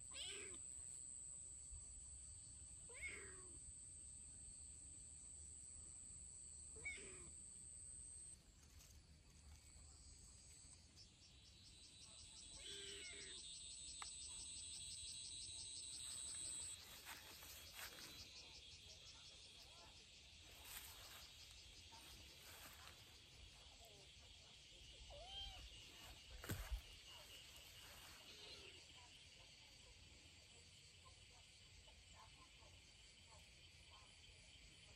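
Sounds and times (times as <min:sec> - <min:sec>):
high-pitched insect trilling: 0:10.0 - 0:29.8.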